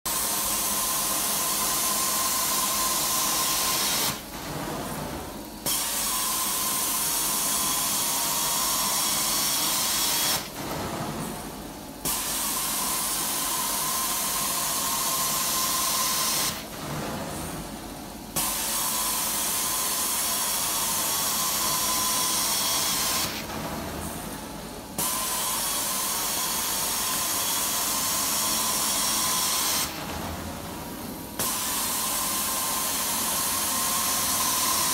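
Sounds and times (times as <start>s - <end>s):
carpet extractor hissing: 0.1s - 17.6s, 18.3s - 24.3s, 24.9s - 34.9s.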